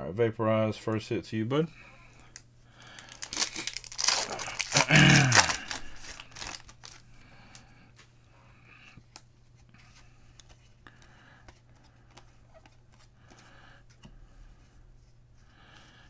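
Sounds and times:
cards rustling: 2.2 - 8.2, 9.0 - 14.0
foil wrapper tearing: 2.9 - 7.0.

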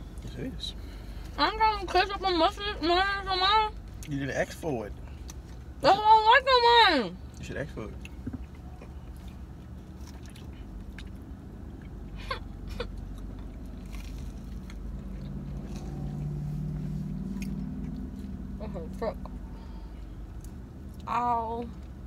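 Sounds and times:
car cabin hum: 0.0 - 20.2
chewing and biting food: 8.0 - 12.1, 12.9 - 18.5.

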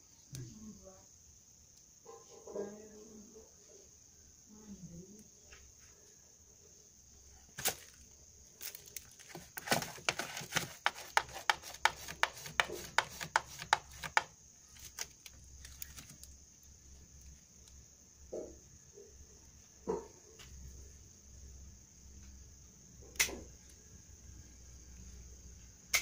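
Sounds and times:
cat rummaging in plastic tub: 8.6 - 16.3
sharp clicks and scrapes: 9.0 - 16.3.

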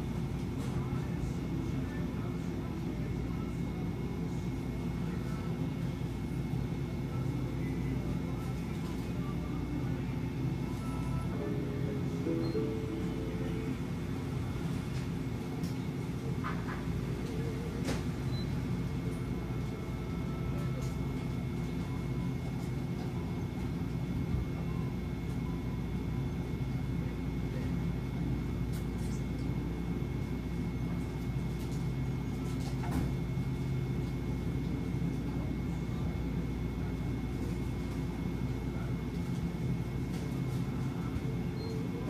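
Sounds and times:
drink coolers humming: 0.0 - 42.0
faint high tone: 10.6 - 14.6.

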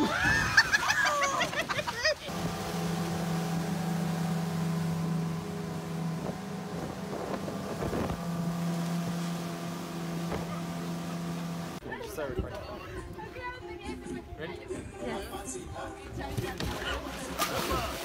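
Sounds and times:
people shrieking and yelling: 0.0 - 2.1
rushing water: 0.0 - 11.9, 16.6 - 18.0
motorboat engine running: 2.2 - 11.9
wind on microphone: 6.1 - 8.5.

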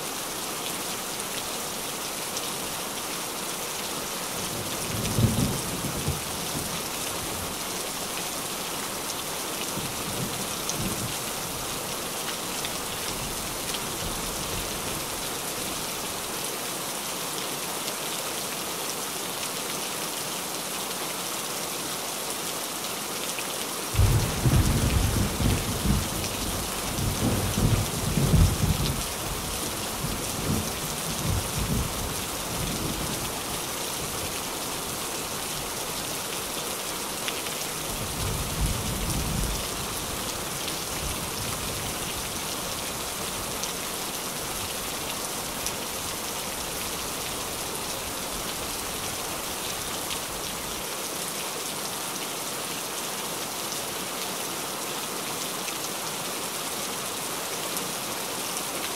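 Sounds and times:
rain drumming on a tin roof: 0.1 - 21.2, 21.9 - 58.9
rolling thunder: 24.0 - 29.0.

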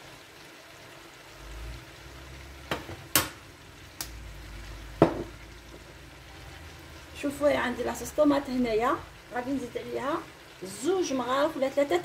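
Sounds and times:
food sizzling in a pot: 0.0 - 12.0
objects set down on worktop: 5.0 - 5.3.

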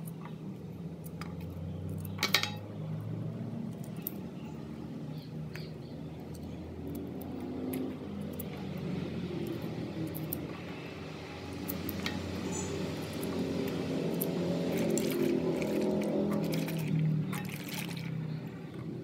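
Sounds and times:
tubers splashing into water: 14.6 - 18.2.

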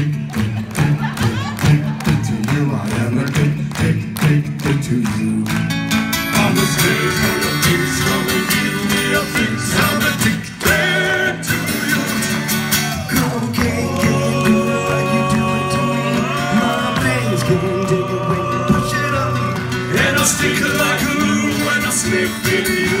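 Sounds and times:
acoustic guitar strumming: 0.0 - 23.0
voices singing: 6.2 - 23.0.

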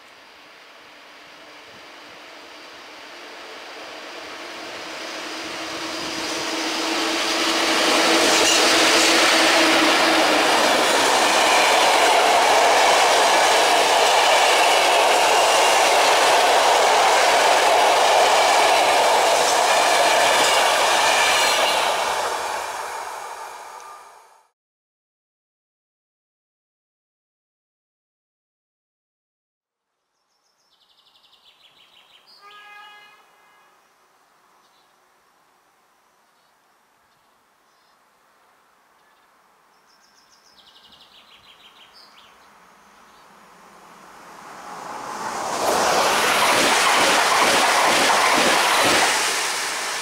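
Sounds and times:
passenger train passing at speed: 0.6 - 24.5, 43.3 - 50.0.

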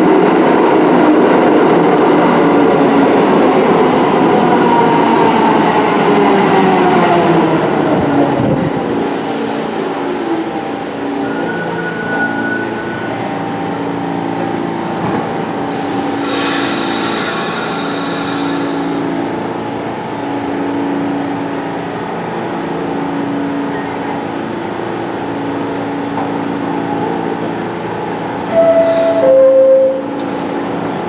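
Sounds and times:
steady train hum: 0.0 - 31.0
subway train braking: 0.0 - 31.0
high-pitched brake squeal: 11.2 - 13.1, 28.5 - 30.2.

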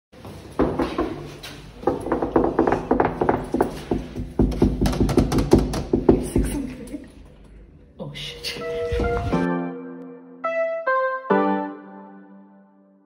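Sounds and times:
background music with repeated notes: 8.6 - 13.0.

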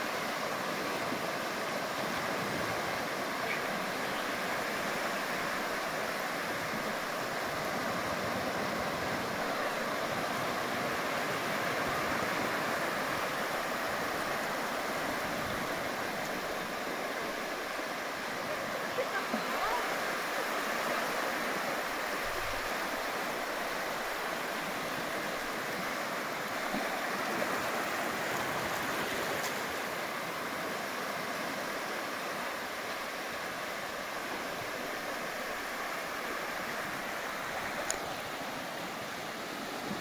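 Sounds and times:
surf washing onto beach: 0.0 - 40.0
small click: 37.8 - 38.0.

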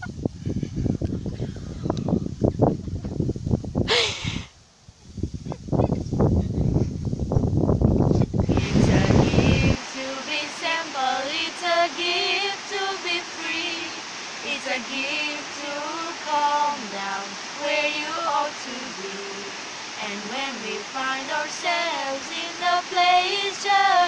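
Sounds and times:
wind noise on microphone: 0.0 - 23.9
girls singing unaccompanied: 8.4 - 24.0
river rushing: 8.4 - 24.0.

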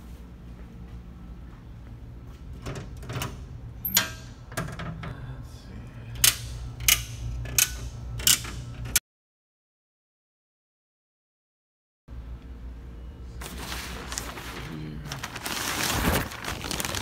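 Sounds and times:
low steady hum: 0.0 - 9.0, 12.1 - 17.0
circuit breakers snapping on: 6.2 - 9.0.

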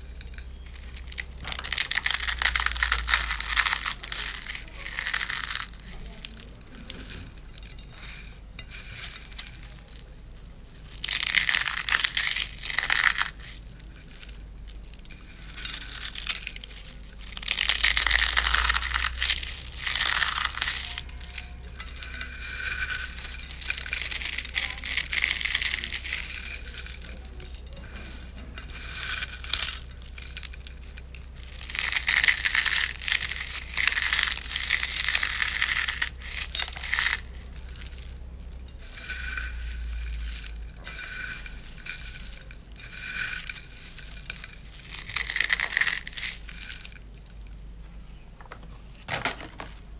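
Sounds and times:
dry noodles crunching by hand: 0.0 - 47.6
snack rustling: 9.3 - 47.3.

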